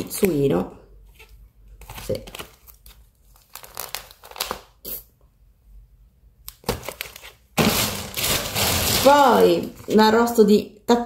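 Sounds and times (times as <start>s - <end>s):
plastic packaging crinkling: 1.8s - 4.8s, 6.5s - 10.0s.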